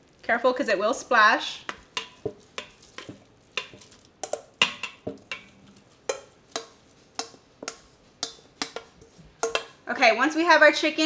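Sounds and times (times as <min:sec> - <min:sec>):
utensil knocking on metal bowl: 0:01.6 - 0:09.8.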